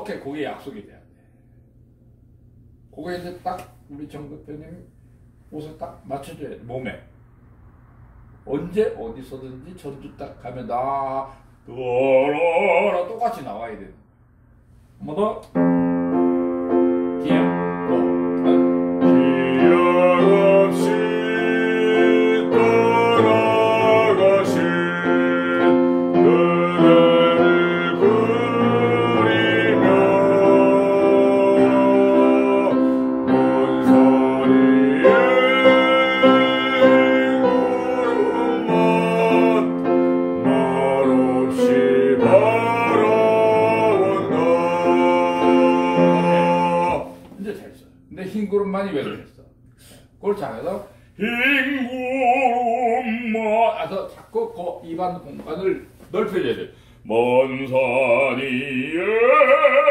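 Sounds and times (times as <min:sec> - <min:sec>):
man singing classical song: 0:11.6 - 0:13.4, 0:17.2 - 0:47.6, 0:51.2 - 0:54.2, 0:57.0 - 0:59.9
piano accompaniment: 0:15.4 - 0:49.0.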